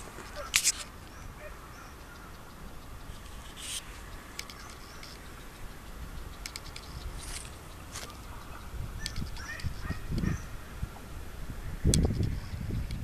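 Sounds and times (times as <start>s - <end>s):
low wind rumble: 0.0s - 13.0s
sharp clicks: 2.0s - 10.3s.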